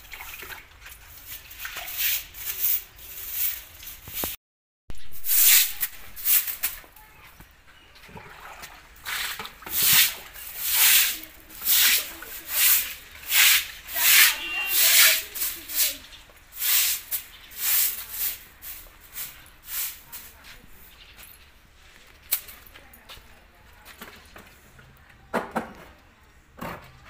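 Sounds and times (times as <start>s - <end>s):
broom sweeping wet concrete: 0.0s - 4.4s, 5.1s - 7.0s, 8.6s - 21.1s.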